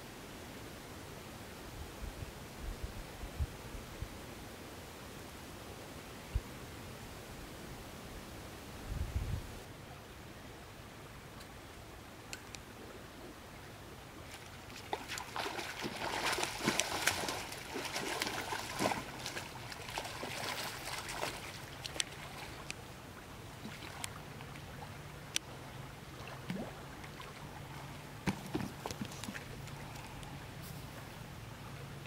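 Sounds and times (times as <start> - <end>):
fish splashing in water: 14.3 - 22.7.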